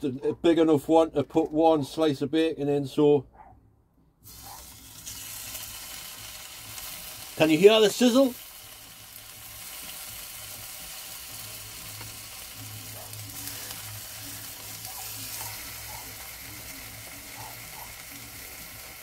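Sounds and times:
bacon sizzling in frying pan: 0:04.2 - 0:19.0.

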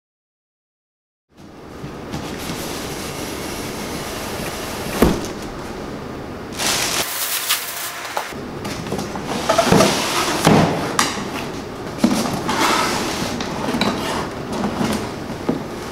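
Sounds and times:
plastic packing crinkling: 0:06.6 - 0:07.7.

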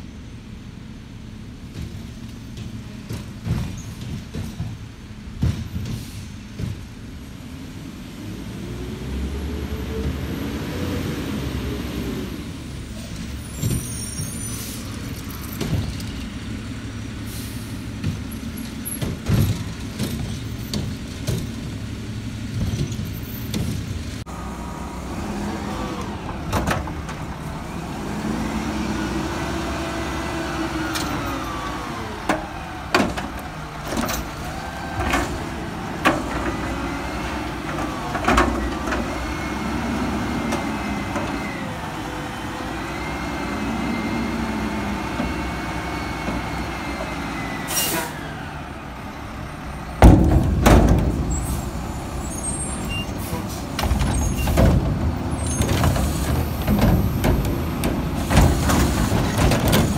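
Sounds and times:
truck engine revving: 0:07.4 - 0:59.9
metal clanks: 0:50.0 - 0:52.0.

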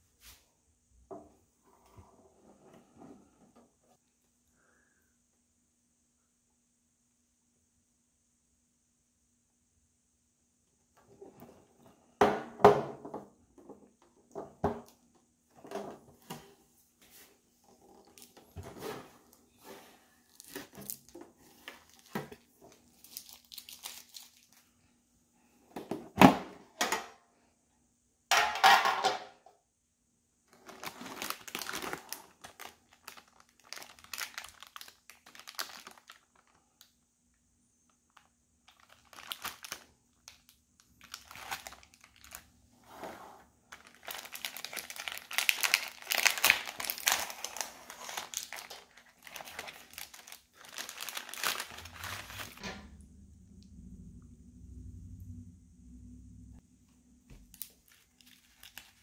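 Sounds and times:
foil packs crinkling: 0:20.2 - 0:24.7, 0:30.5 - 0:37.0, 0:38.1 - 0:42.5, 0:43.7 - 0:52.6, 0:57.5 - 0:59.0.

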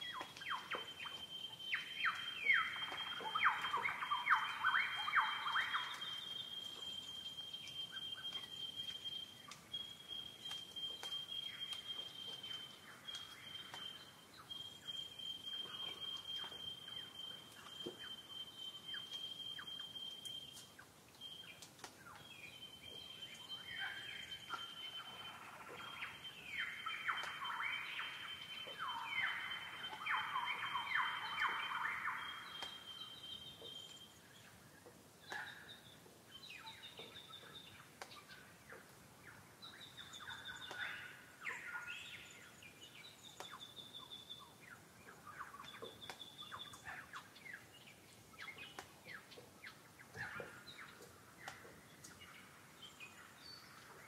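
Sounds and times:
birds singing falling notes: 0:00.0 - 0:54.0.

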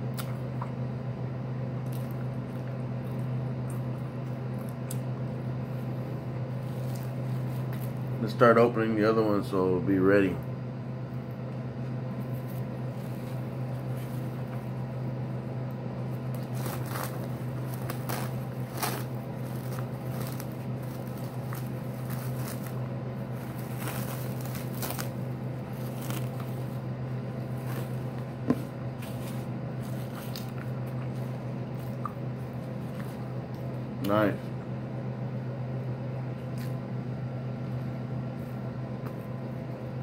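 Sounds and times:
background hum: 0:00.0 - 0:40.0
plastic cling wrap crinkling: 0:16.2 - 0:30.7.

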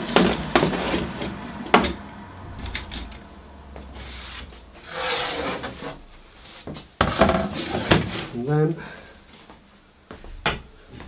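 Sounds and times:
board scraping across workbench: 0:00.2 - 0:01.4, 0:03.8 - 0:08.5.

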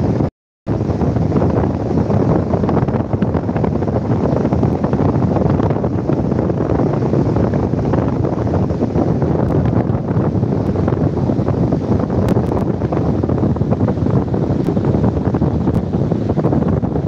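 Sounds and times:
wind noise on microphone: 0:00.0 - 0:17.0.

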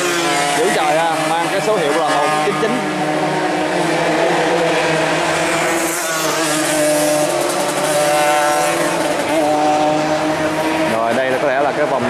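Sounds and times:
motorcycle passing by: 0:00.0 - 0:12.0
motorcycles revving high: 0:00.0 - 0:12.0.

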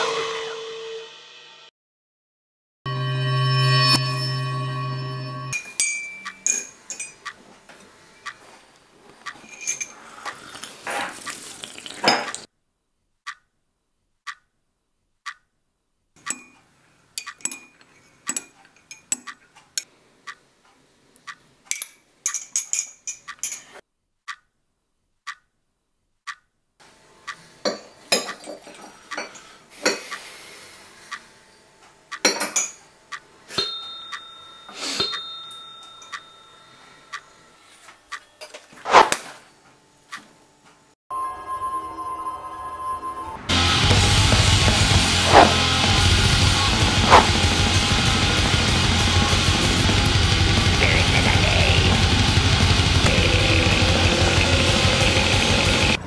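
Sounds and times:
porcelain cups clinking: 0:05.6 - 0:07.2, 0:09.4 - 0:10.7, 0:21.7 - 0:23.8
faint high tone: 0:41.1 - 0:43.5.

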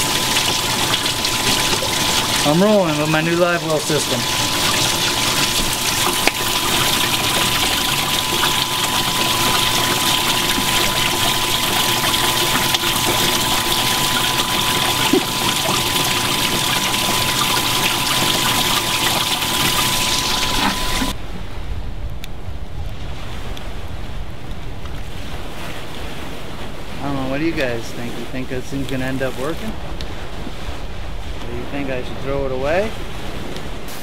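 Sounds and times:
thin steady tone: 0:00.0 - 0:21.2
water streaming into tank: 0:00.0 - 0:21.2.

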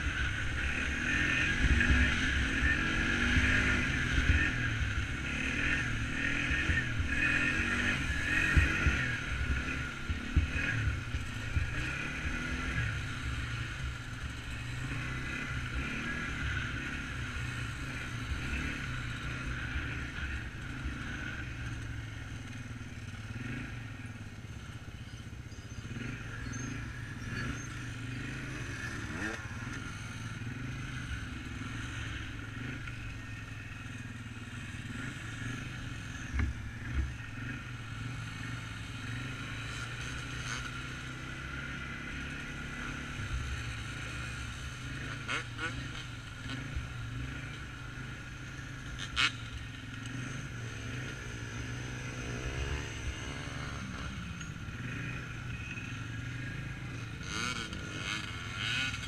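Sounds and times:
quad engine running: 0:00.0 - 0:59.0.

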